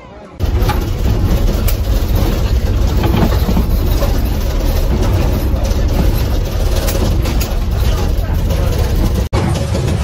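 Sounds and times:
moving vehicle rumble: 0:00.4 - 0:10.0.

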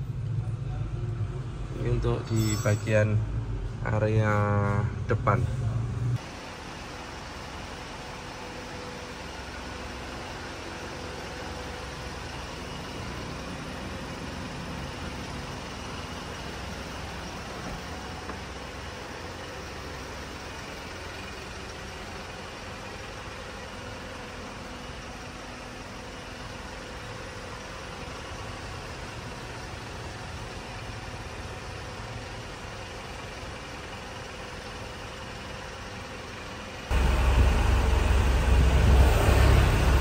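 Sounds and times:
diesel engine idling: 0:00.0 - 0:40.0.

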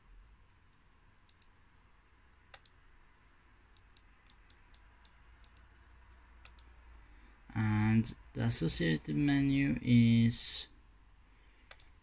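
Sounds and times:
faint laptop clicking: 0:11.7 - 0:12.0.

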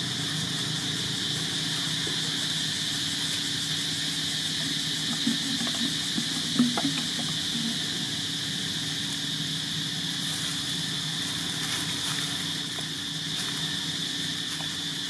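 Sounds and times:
insect drone: 0:00.0 - 0:15.0
low steady hum: 0:00.0 - 0:15.0
faint ticks: 0:04.5 - 0:08.1.

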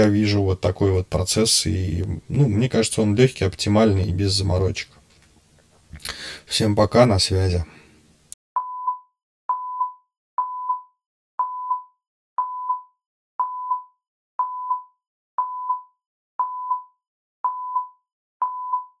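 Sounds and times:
countdown timer beeps: 0:08.6 - 0:19.0.

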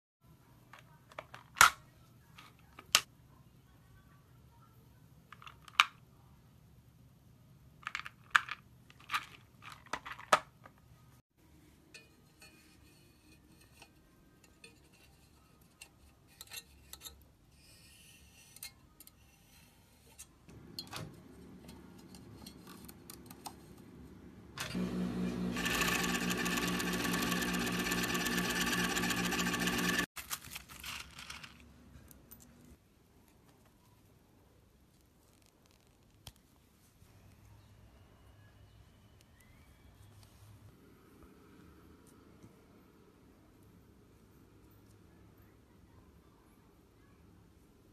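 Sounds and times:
industrial sewing machine running: 0:24.6 - 0:30.1.

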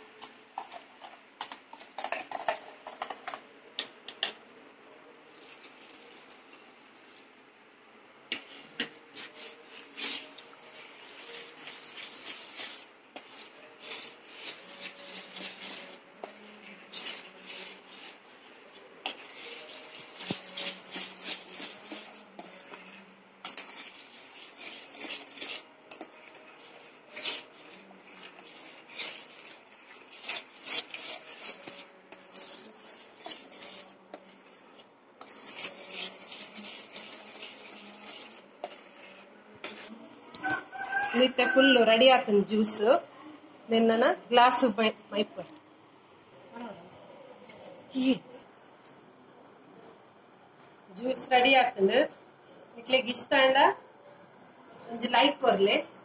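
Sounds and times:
metal spoon scraping a steel bowl: 0:00.0 - 0:03.4, 0:08.3 - 0:41.6.

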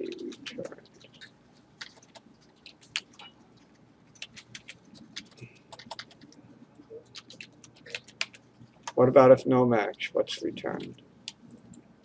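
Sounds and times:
typing on computer keyboard: 0:00.0 - 0:03.3, 0:04.1 - 0:06.4, 0:07.0 - 0:09.0.

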